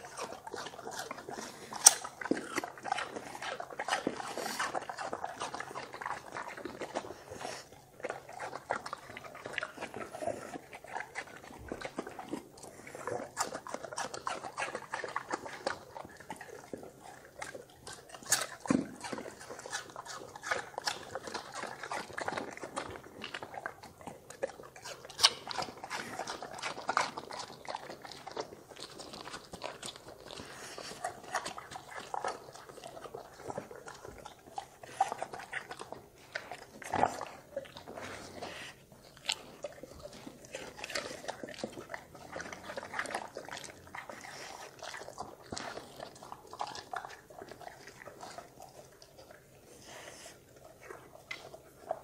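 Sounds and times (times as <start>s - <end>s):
dogs chewing and crunching food: 0.0s - 52.0s.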